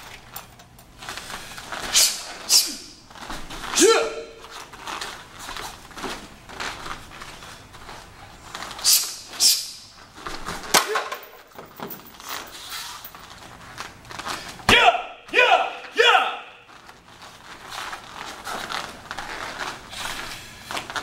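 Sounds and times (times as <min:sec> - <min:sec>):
scuffs and knocks of movement: 0:00.0 - 0:14.8, 0:16.6 - 0:21.0
short yell: 0:03.7 - 0:04.5, 0:14.7 - 0:16.7.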